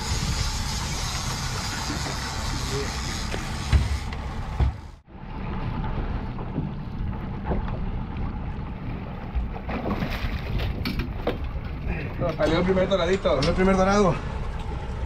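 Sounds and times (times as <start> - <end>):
water noise: 0.0 - 15.0
wind: 0.0 - 15.0
fish splashing and knocking: 9.3 - 11.8.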